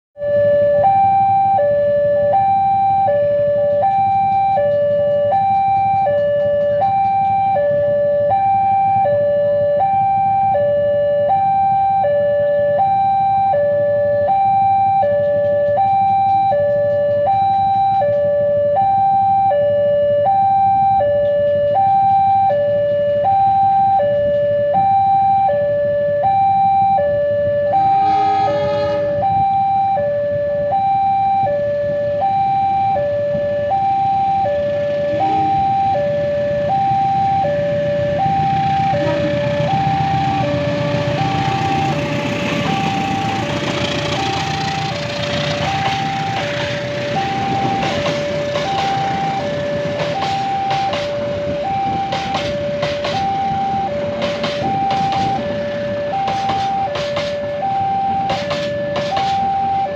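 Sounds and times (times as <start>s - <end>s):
level crossing two-tone alarm: 0.2s - 59.9s
train horn: 27.9s - 29.3s, 35.1s - 35.8s, 38.8s - 44.3s.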